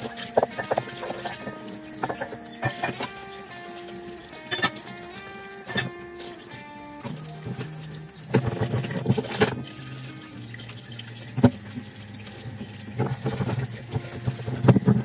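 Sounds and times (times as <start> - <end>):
pan knocking against sink: 0.0 - 3.2
dishes being scrubbed: 0.0 - 15.0
tap water running into sink: 0.0 - 15.0.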